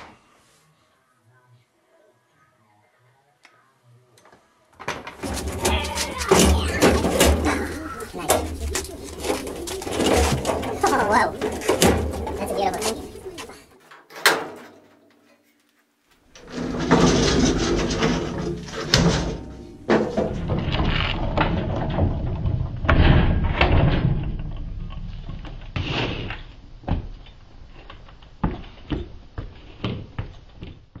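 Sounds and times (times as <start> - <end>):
casters rolling on concrete: 4.2 - 14.0, 16.2 - 31.0
metal clanks and knocks: 4.8 - 15.0, 16.4 - 25.8.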